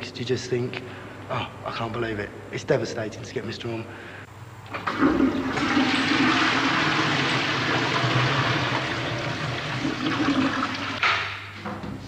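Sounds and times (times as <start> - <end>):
urinals flushing: 4.7 - 11.4.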